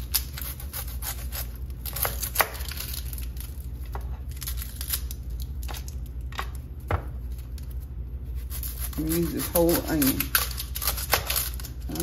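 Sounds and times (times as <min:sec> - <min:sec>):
knife cutting dry onion skin: 0:00.0 - 0:05.9, 0:07.2 - 0:12.0
low steady hum: 0:00.0 - 0:12.0.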